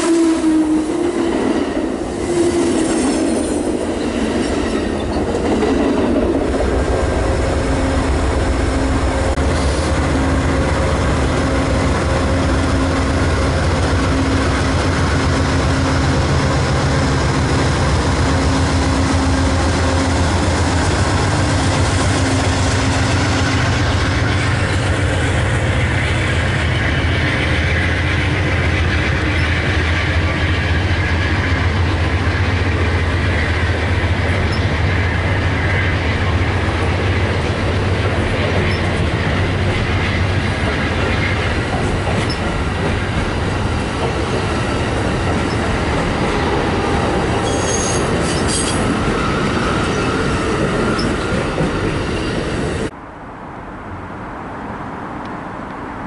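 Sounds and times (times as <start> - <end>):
train horn: 0.0 - 3.6, 7.5 - 36.7, 45.8 - 50.2
train wheels rumbling: 0.0 - 53.1.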